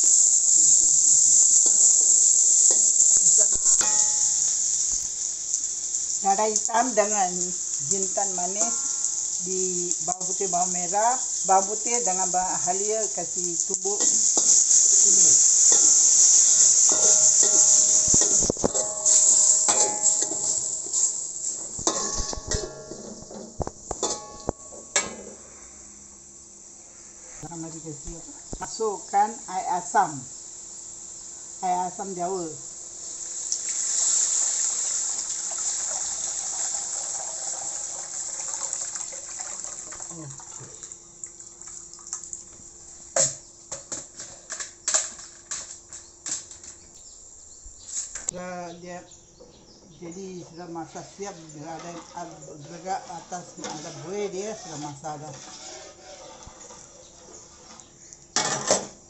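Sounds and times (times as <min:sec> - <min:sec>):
oil sizzling: 0:00.0 - 0:48.4, 0:50.6 - 0:59.0
metal spatula scraping wok: 0:00.3 - 0:06.6, 0:13.0 - 0:25.8, 0:51.1 - 0:59.0
kitchen utensils clattering: 0:02.7 - 0:04.5, 0:14.0 - 0:25.3, 0:43.2 - 0:46.9, 0:58.4 - 0:59.0.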